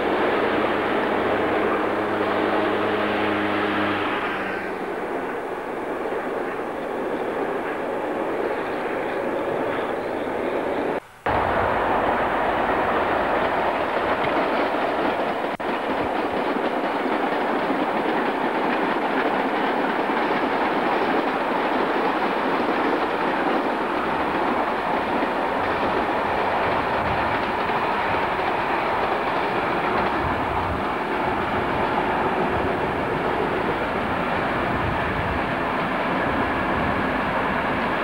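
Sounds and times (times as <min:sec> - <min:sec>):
train wheels on rails: 0:00.0 - 0:38.0.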